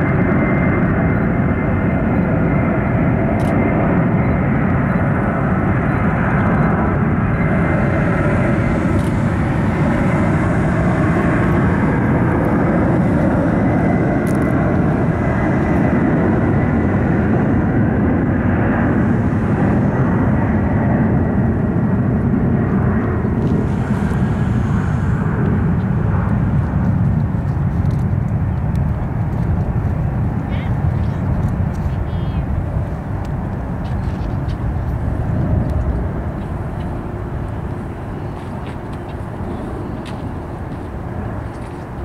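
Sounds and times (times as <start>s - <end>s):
jet engines roaring: 0.0s - 42.0s
faint high whine: 3.4s - 26.7s.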